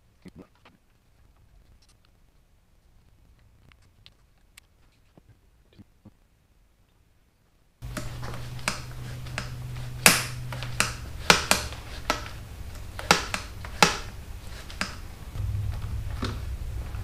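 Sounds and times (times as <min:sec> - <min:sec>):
hand tools clicking and tapping: 0:07.8 - 0:15.3
low hum: 0:07.8 - 0:17.0.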